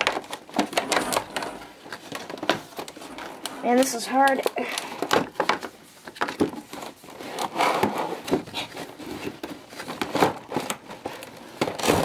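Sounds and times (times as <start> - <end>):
sharp plastic clicks and cracks: 0.0 - 8.4
cardboard packaging rustling: 0.0 - 12.0.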